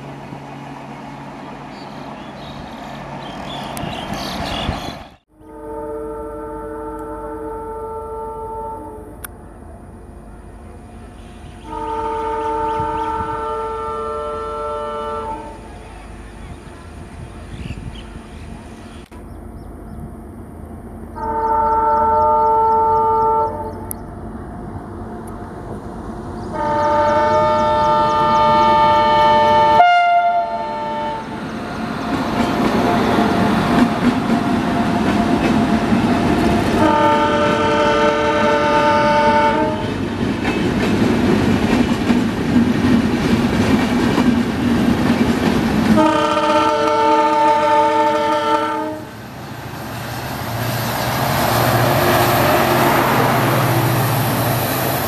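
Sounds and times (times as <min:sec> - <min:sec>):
train rumbling: 0:00.0 - 0:55.0
locomotive horn blasts: 0:05.3 - 0:09.2, 0:11.6 - 0:15.7, 0:21.2 - 0:23.8, 0:26.5 - 0:31.4, 0:36.8 - 0:40.0, 0:46.0 - 0:49.1.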